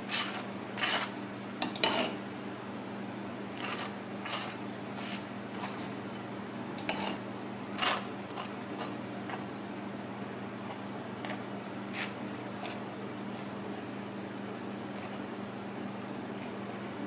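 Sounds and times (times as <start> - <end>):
steady low hum: 0.0 - 17.0
knife scraping toast: 0.1 - 2.2, 3.6 - 5.9, 7.8 - 9.4, 11.2 - 12.8.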